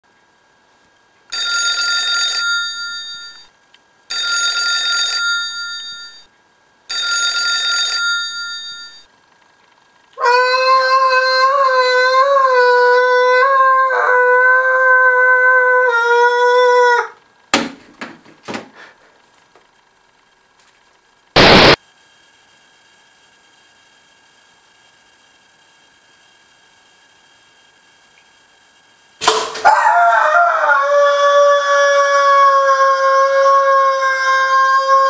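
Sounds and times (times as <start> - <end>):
landline telephone ringing: 1.3 - 3.5, 4.1 - 6.3, 6.9 - 9.1.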